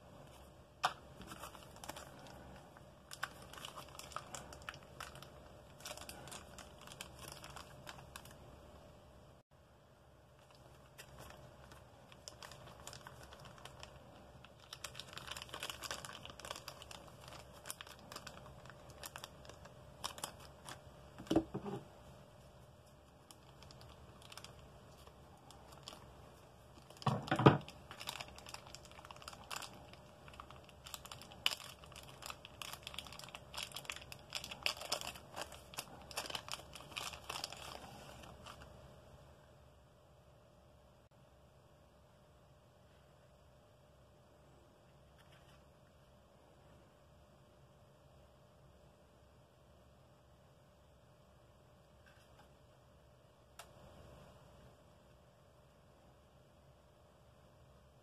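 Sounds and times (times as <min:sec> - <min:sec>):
plastic bag crinkling: 0:00.8 - 0:08.4, 0:10.4 - 0:21.8, 0:23.2 - 0:38.7.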